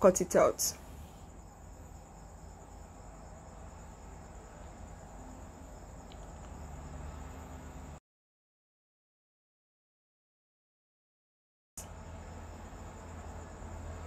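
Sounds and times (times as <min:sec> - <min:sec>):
crickets trilling: 0:00.0 - 0:08.0, 0:11.8 - 0:14.0
low background hum: 0:00.0 - 0:08.0, 0:11.8 - 0:14.0.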